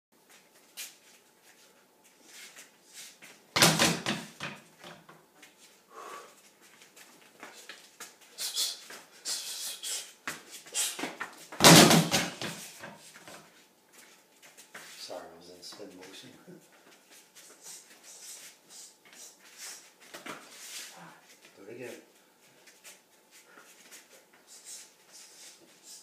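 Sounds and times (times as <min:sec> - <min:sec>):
light scuffs: 0:00.2 - 0:03.4, 0:12.4 - 0:26.0
loud thuds on gym floor: 0:03.6 - 0:04.6, 0:11.6 - 0:12.6
short hissing noises: 0:08.3 - 0:11.1, 0:17.4 - 0:21.1, 0:24.0 - 0:26.0.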